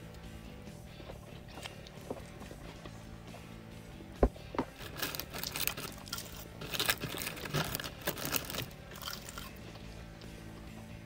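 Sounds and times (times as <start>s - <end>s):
crunchy chewing: 0.8s - 3.6s, 4.6s - 10.4s.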